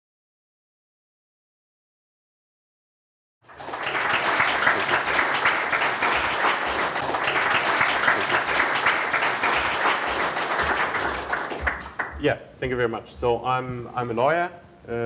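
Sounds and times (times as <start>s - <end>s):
audience applauding: 3.4s - 12.2s.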